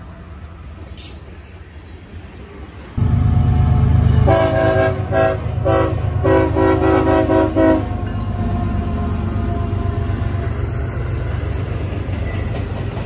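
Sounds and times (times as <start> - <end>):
rumble of passing train: 0.0 - 13.0
locomotive horn blasts: 3.0 - 8.3.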